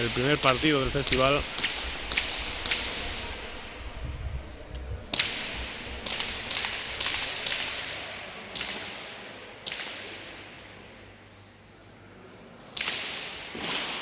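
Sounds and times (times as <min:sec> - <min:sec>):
ball smacking against walls with echo: 0:00.0 - 0:03.4, 0:05.1 - 0:10.4, 0:12.7 - 0:14.0.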